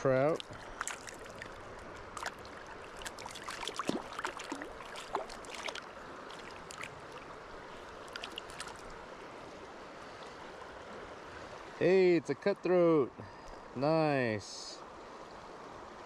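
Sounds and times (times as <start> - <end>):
river current running: 0.0 - 16.0
fish splashing at surface: 3.0 - 5.8.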